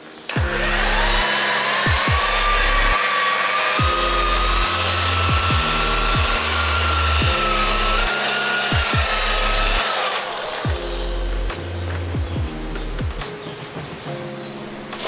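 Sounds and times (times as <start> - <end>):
electric polisher motor whining: 0.3 - 11.3.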